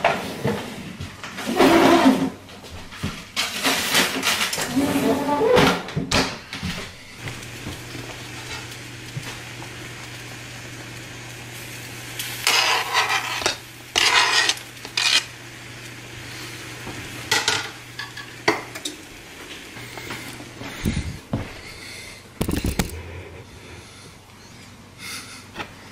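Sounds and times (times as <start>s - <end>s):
scraping on cutting board: 1.4s - 2.4s, 3.6s - 5.9s, 12.4s - 15.3s
steady low hum: 13.4s - 25.9s.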